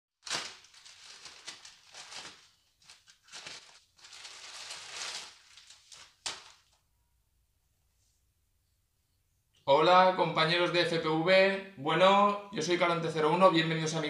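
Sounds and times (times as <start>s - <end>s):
plastic bag crinkling: 0.2s - 6.8s.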